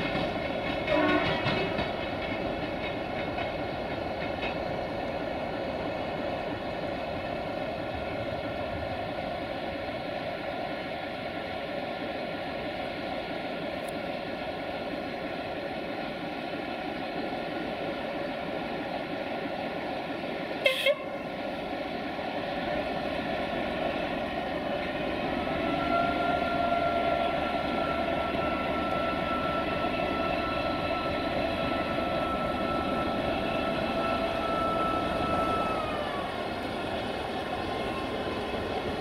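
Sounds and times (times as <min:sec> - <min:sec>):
train running noise: 0:00.0 - 0:39.0
train horn blast: 0:00.9 - 0:01.7, 0:20.6 - 0:21.2, 0:25.6 - 0:35.6.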